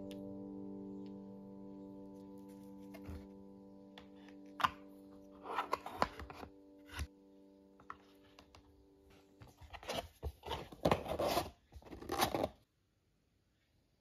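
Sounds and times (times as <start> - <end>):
cardboard scraping and rustling: 9.5 - 12.6.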